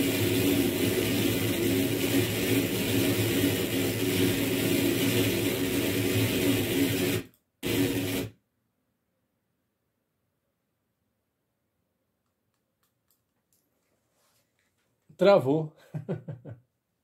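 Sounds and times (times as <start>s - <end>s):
electronic noise drone: 0.0s - 8.3s.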